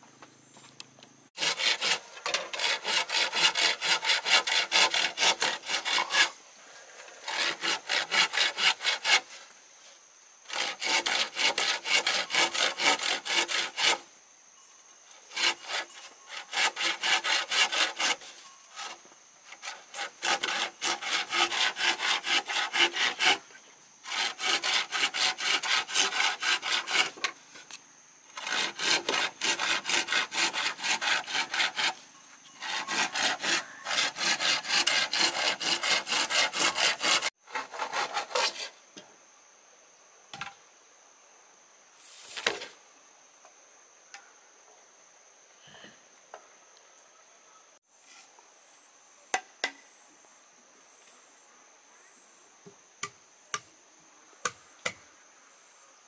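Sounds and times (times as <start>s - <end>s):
hand saw cutting bamboo: 1.4s - 6.4s, 7.2s - 9.4s, 10.5s - 14.0s, 15.3s - 23.4s, 24.0s - 27.4s, 28.4s - 32.0s, 32.6s - 38.7s.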